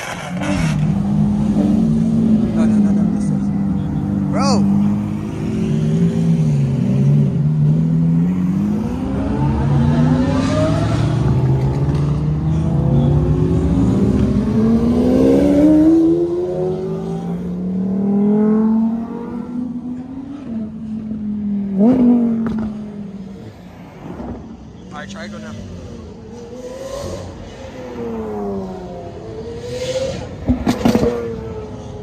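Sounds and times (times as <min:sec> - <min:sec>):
sports car engines revving: 0:00.0 - 0:32.0.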